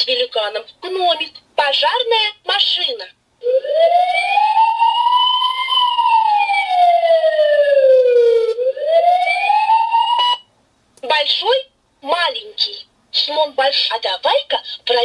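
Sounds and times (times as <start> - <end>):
fire engine siren from toy speaker: 3.4 - 10.5.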